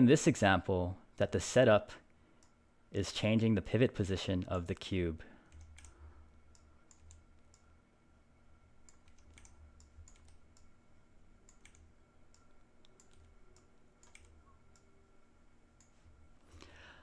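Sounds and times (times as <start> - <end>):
low steady hum: 0.0 - 17.0
mouse and keyboard clicking: 8.9 - 10.7, 11.5 - 14.9.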